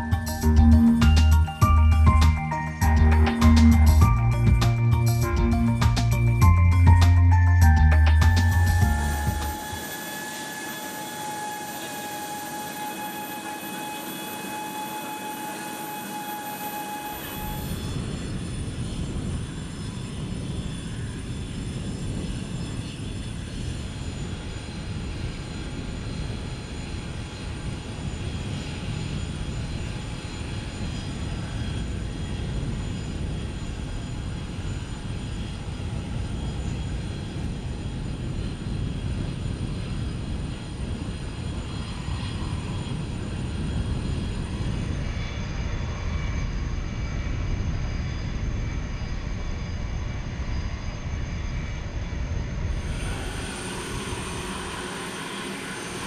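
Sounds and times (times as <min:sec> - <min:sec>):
steady humming tone: 0:00.0 - 0:25.1, 0:52.6 - 0:56.0
jet engines rumbling: 0:00.0 - 0:51.3, 0:52.6 - 0:56.0
high-pitched turbine whine: 0:00.0 - 0:56.0.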